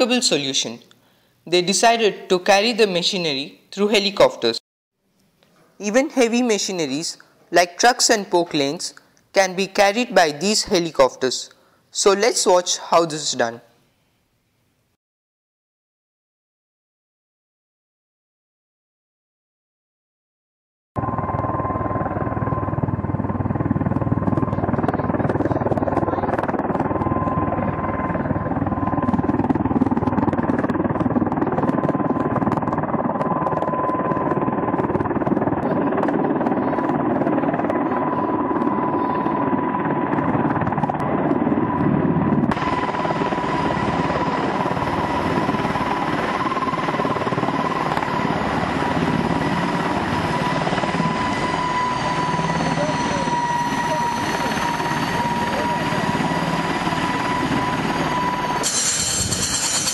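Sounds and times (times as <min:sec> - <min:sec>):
helicopter hovering: 0:21.0 - 0:59.9.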